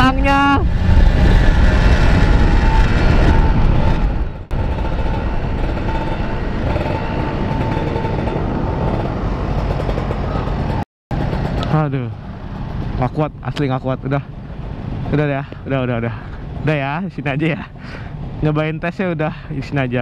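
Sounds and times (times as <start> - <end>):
wind rushing over microphone: 0.0 - 15.2
motorcycle engine running: 4.2 - 13.0.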